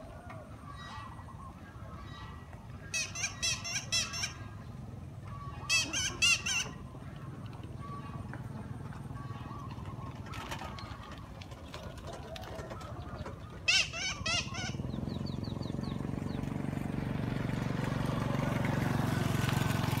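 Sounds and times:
approaching vehicle engine hum: 0:00.0 - 0:20.0
high chirping calls: 0:02.8 - 0:07.0, 0:13.6 - 0:16.5.

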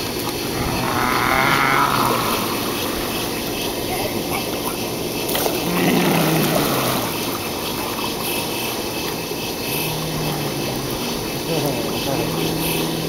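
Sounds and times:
pool water splashing: 0:00.0 - 0:13.0
steady hum: 0:00.0 - 0:13.0.

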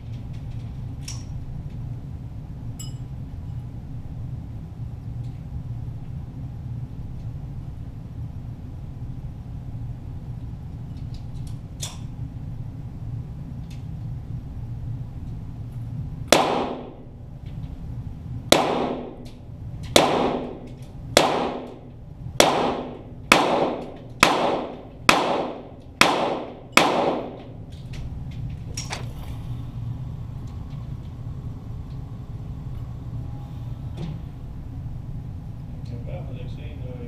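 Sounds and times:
pistol shots echoing: 0:16.3 - 0:17.1, 0:18.5 - 0:19.3, 0:19.9 - 0:27.5.

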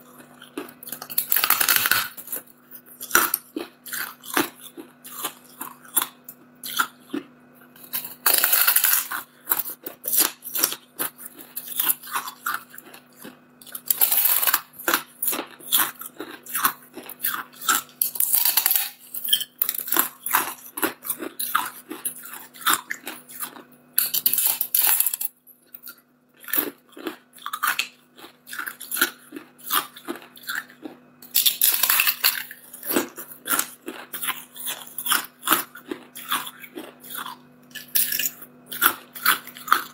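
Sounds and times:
person crunching ice: 0:00.1 - 0:02.4, 0:03.0 - 0:07.2, 0:07.8 - 0:39.9.

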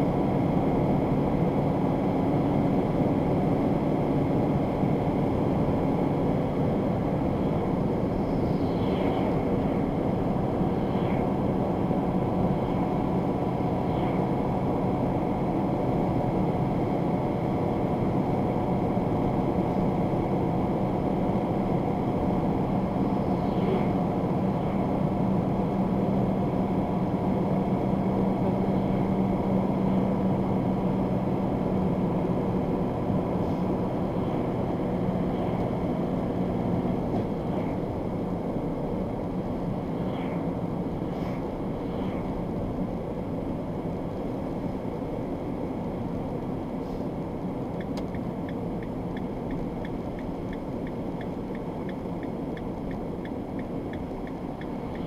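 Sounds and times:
vehicle engine and tyre noise: 0:00.0 - 0:55.0
turn signal ticking: 0:47.8 - 0:55.0.

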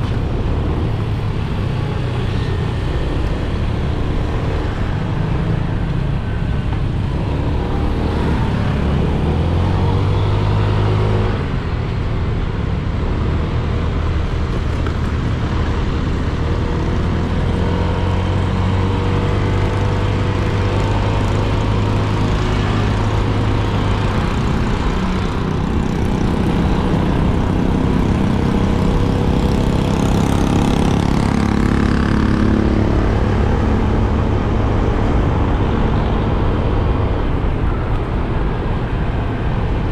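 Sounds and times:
wind and road noise: 0:00.0 - 0:39.9
motorcycle engine running: 0:18.7 - 0:35.4.

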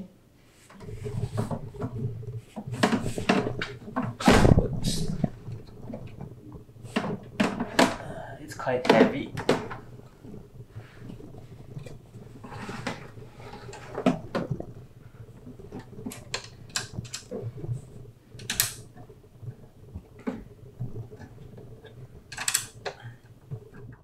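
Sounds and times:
metal clicks and knocks: 0:18.4 - 0:18.8, 0:22.3 - 0:23.0.

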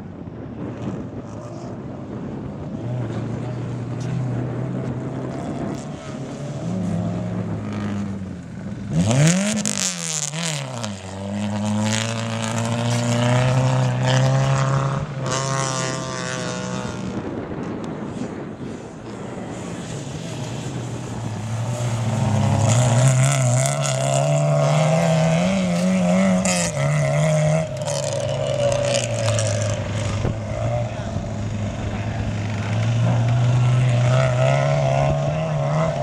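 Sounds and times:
race car engines revving: 0:00.0 - 0:36.0.

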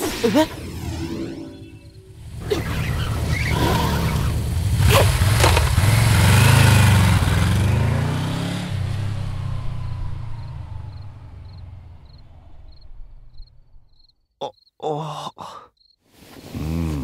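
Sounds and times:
motorcycle engine revving: 0:02.1 - 0:13.8
sharp cracks: 0:04.8 - 0:06.3.

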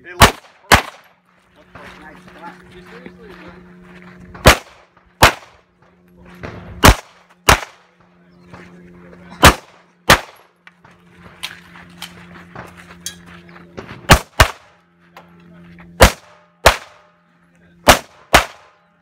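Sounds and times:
pistol shots: 0:00.2 - 0:01.1, 0:04.4 - 0:05.6, 0:06.4 - 0:07.9, 0:09.4 - 0:10.5, 0:14.1 - 0:14.7, 0:16.0 - 0:17.1, 0:17.8 - 0:18.7.

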